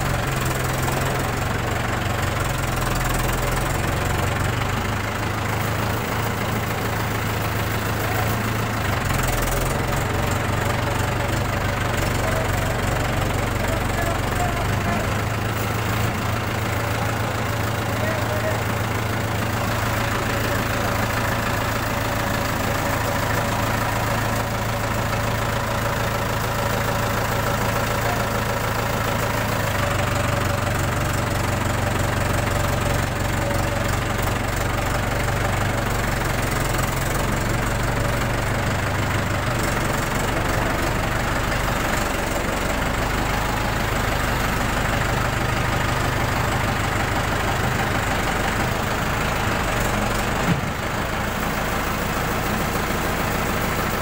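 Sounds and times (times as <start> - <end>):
tractor diesel engine running: 0.0 - 54.0.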